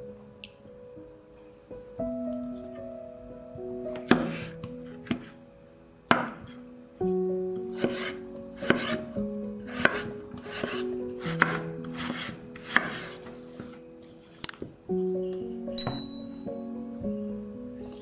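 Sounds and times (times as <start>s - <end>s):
background music: 0.0s - 18.0s
knife cutting potatoes on board: 4.0s - 5.3s, 7.7s - 9.0s, 9.7s - 13.3s.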